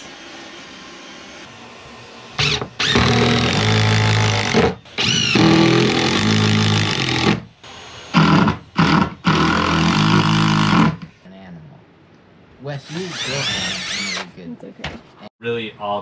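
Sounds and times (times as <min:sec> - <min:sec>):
cordless drill driving screws: 0:02.4 - 0:11.0, 0:12.8 - 0:14.3.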